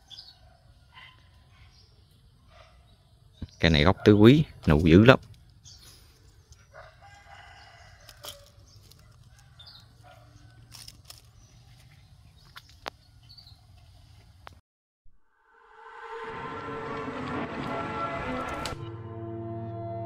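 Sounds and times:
leaves rustling and clicking: 0:07.8 - 0:13.0.

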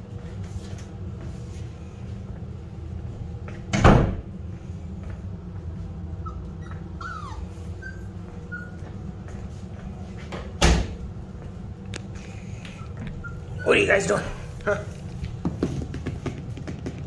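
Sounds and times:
low hum of fans: 0:00.0 - 0:17.0
puppies squeaking and whimpering: 0:06.2 - 0:08.9, 0:12.7 - 0:14.4.

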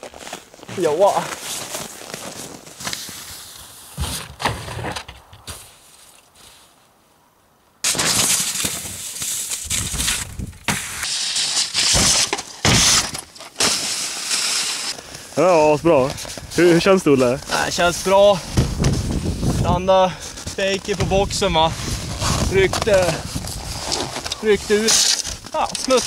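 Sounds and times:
skis scraping over snow: 0:00.0 - 0:04.2, 0:13.6 - 0:26.0
sled thudding on ramp: 0:07.9 - 0:14.7, 0:17.5 - 0:19.6.

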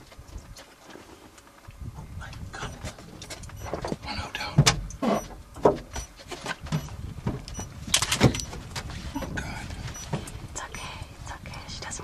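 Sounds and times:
vehicle roof creaking and knocking: 0:03.0 - 0:10.4.

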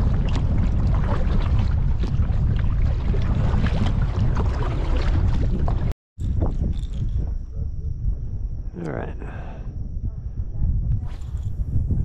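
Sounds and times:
water slapping against kayak hull: 0:00.0 - 0:05.9
wind buffeting microphone: 0:00.0 - 0:12.0.

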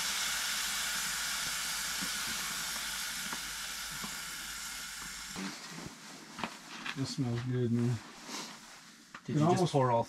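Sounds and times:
chili sizzling in a hot pot: 0:00.0 - 0:07.0.

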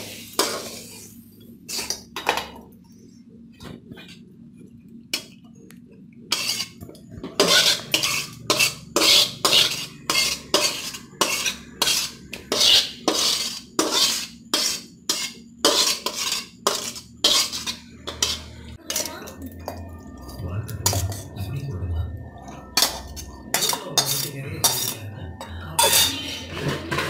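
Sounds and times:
metal spatula scraping a wok: 0:00.0 - 0:02.1, 0:06.3 - 0:19.2, 0:22.6 - 0:25.0, 0:25.7 - 0:27.0.

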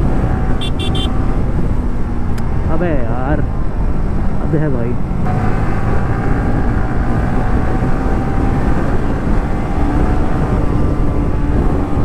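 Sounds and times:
motorcycle engine running: 0:00.0 - 0:01.6
wind rush on microphone: 0:00.0 - 0:12.0.

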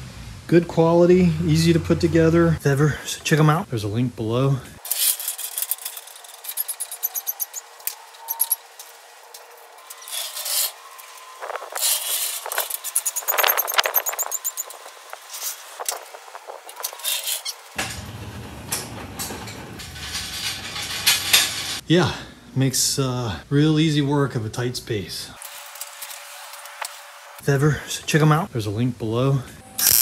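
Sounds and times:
dollies rolling on concrete: 0:04.8 - 0:21.8, 0:29.8 - 0:30.0.

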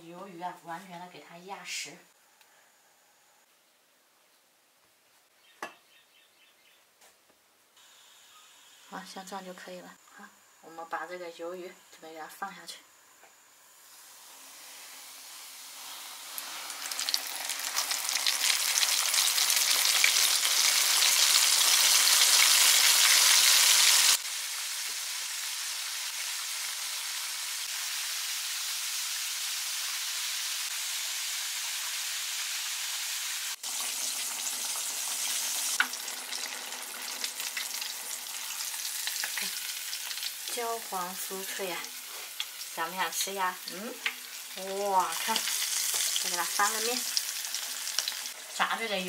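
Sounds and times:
squid sizzling in hot oil: 0:13.6 - 0:49.0.

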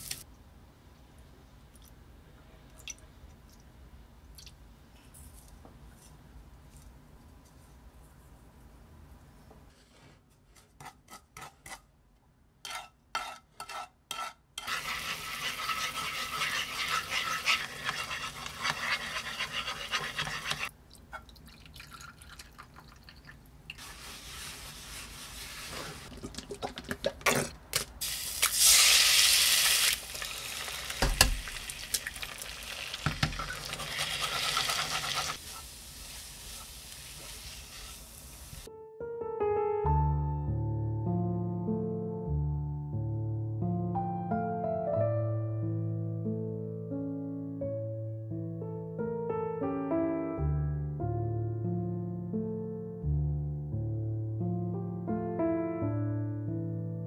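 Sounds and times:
spatula pushing eggs in pan: 0:12.6 - 0:20.7, 0:32.7 - 0:38.2
spoon stirring in frying pan: 0:12.6 - 0:21.3, 0:30.1 - 0:38.7.

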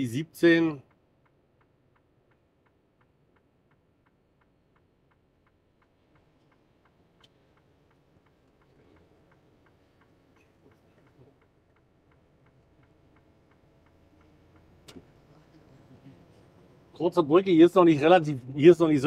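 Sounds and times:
turn signal ticking: 0:00.0 - 0:19.0.

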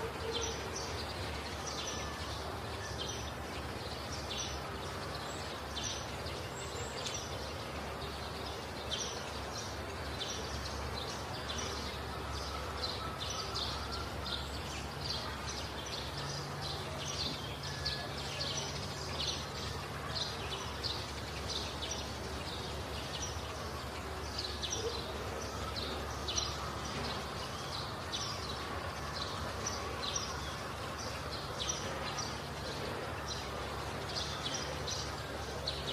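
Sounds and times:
small birds chirping: 0:00.0 - 0:35.9.

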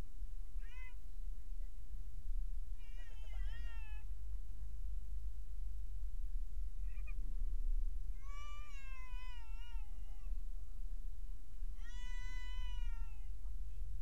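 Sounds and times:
cat meowing: 0:00.6 - 0:01.0, 0:02.8 - 0:04.1, 0:08.2 - 0:10.3, 0:11.8 - 0:13.3.

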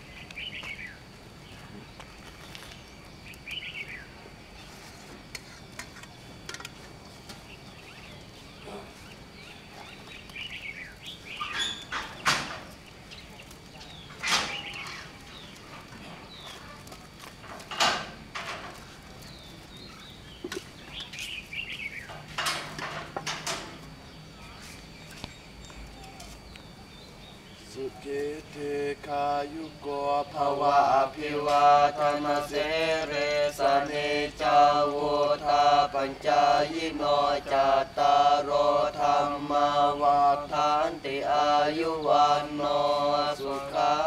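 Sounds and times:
small birds chirping: 0:00.0 - 0:05.4, 0:07.0 - 0:17.0, 0:19.0 - 0:22.2, 0:23.9 - 0:28.4.

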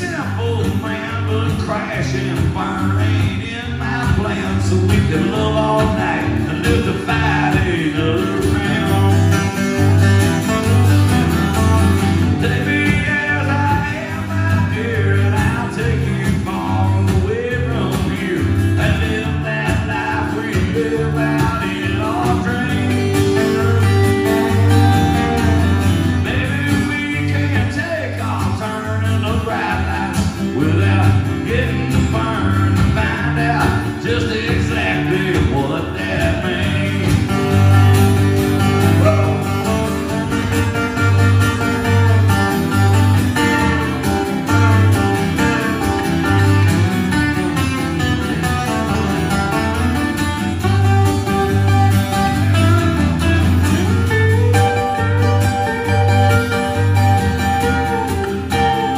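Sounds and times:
acoustic guitars strumming country song: 0:00.0 - 0:58.9.

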